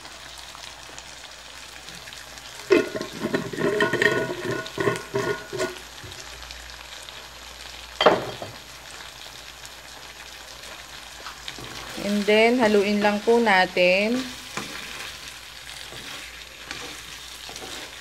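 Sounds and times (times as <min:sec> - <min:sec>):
wok sizzling: 0:00.0 - 0:18.0
clattering with ringing tones: 0:02.7 - 0:05.8.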